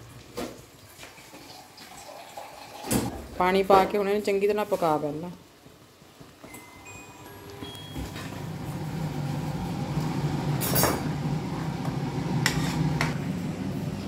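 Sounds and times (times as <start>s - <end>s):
ladle scraping and clinking a pan: 12.4s - 13.2s.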